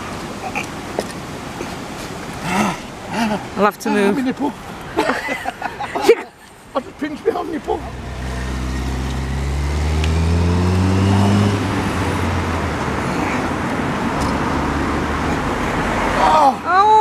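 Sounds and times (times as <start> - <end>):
road and tyre noise: 0.0 - 17.0
vehicle engine accelerating: 7.7 - 16.2.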